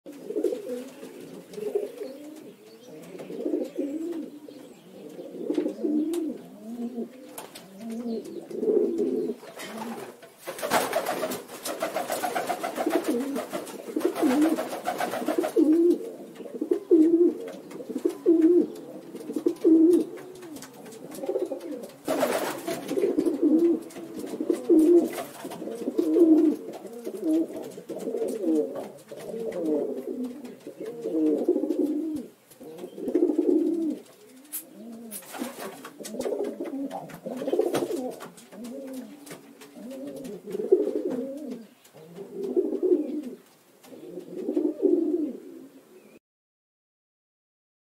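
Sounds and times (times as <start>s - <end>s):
pigeons cooing: 0.1s - 46.2s
rustling noise: 7.2s - 44.6s.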